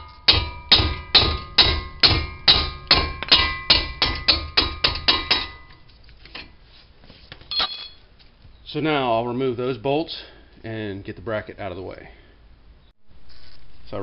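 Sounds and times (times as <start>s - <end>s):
mallet striking metal wrench: 0.0s - 5.8s.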